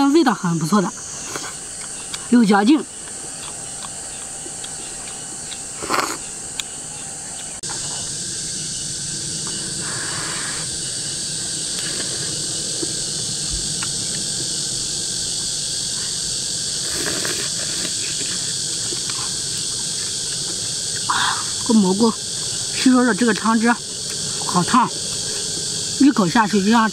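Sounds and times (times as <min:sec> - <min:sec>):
insects chorus: 0:00.0 - 0:26.9
slurps of soup: 0:05.8 - 0:06.2, 0:16.8 - 0:18.3.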